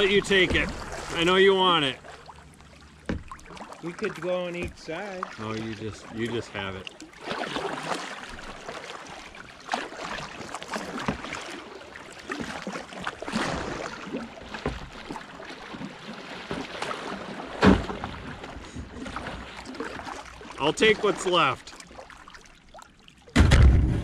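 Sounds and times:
short splashes: 0:00.0 - 0:24.0
water lapping around kayak: 0:00.0 - 0:24.0
loud knock: 0:23.4 - 0:24.0.

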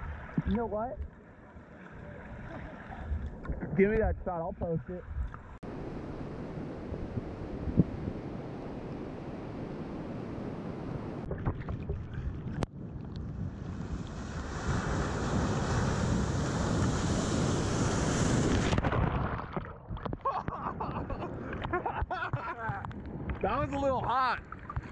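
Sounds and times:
water washing near camera: 0:00.0 - 0:24.9
wind on microphone: 0:02.9 - 0:24.9
ocean surf breaking: 0:05.5 - 0:11.3, 0:13.4 - 0:19.5.

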